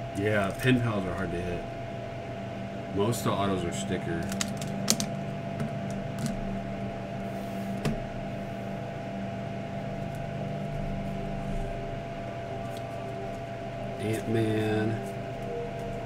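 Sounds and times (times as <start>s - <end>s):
electrical hum: 0.0s - 16.0s
cards clicking: 4.2s - 5.1s.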